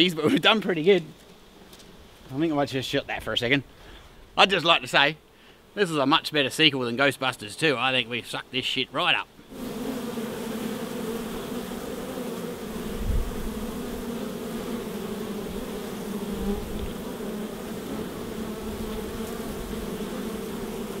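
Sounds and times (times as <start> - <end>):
honeybees buzzing: 9.3 - 21.0.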